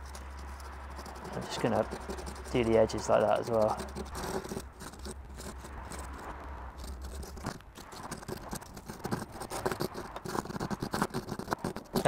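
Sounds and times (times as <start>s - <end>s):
wood scratching on sandpaper: 0.0s - 12.0s.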